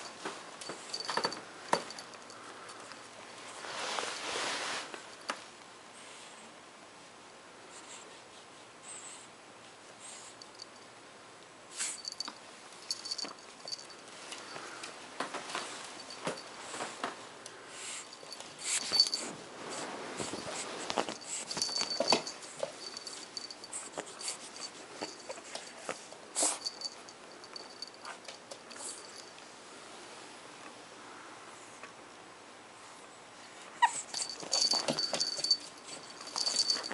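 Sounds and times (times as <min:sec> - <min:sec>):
collar jingling: 0:00.0 - 0:03.1, 0:11.8 - 0:14.8, 0:15.8 - 0:16.6, 0:18.0 - 0:29.4, 0:33.8 - 0:36.9
puppy rustling in blanket: 0:00.0 - 0:05.3, 0:17.8 - 0:29.3, 0:34.1 - 0:36.9.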